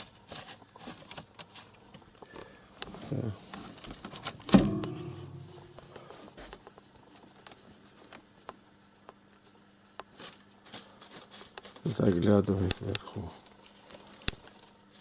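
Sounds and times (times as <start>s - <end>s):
sharp ringing knock: 4.5s - 6.0s.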